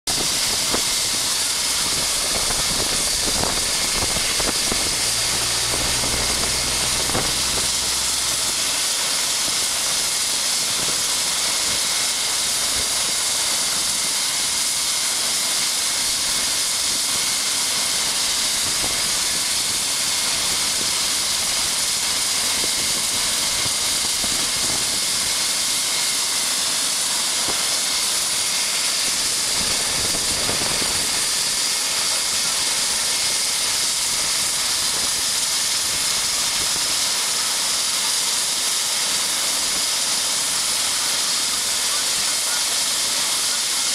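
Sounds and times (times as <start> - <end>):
helicopter turbine whine: 0.1 - 43.9
low hum: 0.2 - 10.4.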